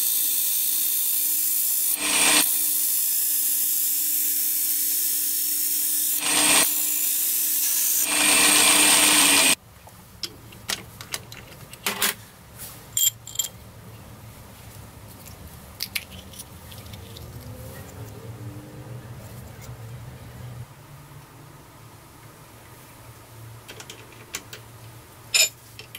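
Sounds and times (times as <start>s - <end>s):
drill press grinding: 2.0s - 2.4s, 6.2s - 6.7s, 8.0s - 9.6s.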